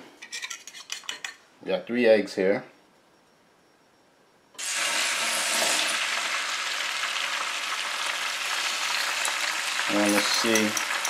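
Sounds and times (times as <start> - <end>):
eggs sizzling on griddle: 4.6 - 11.0.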